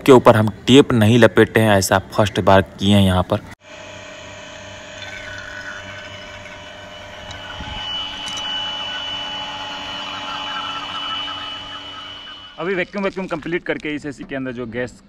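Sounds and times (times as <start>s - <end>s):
electric vacuum pump running: 3.6s - 12.6s
thin high whine: 3.6s - 13.4s.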